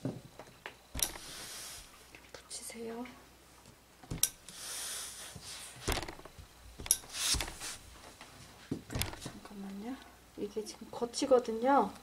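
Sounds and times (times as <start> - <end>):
steam iron hissing: 1.0 - 2.0, 4.4 - 5.8, 6.9 - 7.9.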